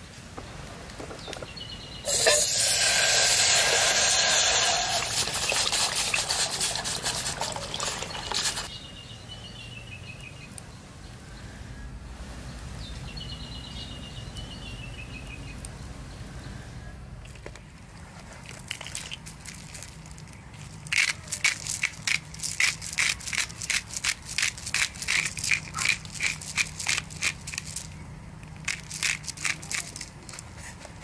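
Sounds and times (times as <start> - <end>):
water pouring into a steel pot: 2.1 - 8.7.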